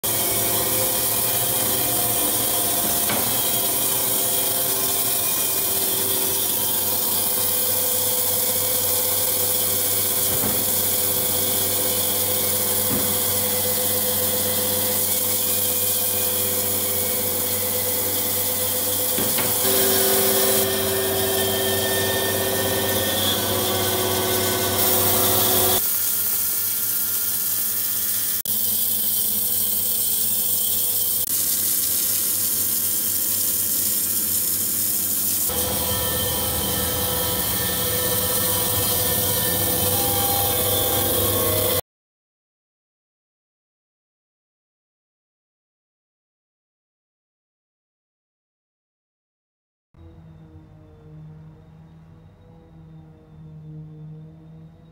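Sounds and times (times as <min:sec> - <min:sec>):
band saw blade hissing: 0:00.0 - 0:41.8
motor hum: 0:00.0 - 0:41.8
constant whine: 0:35.5 - 0:41.8.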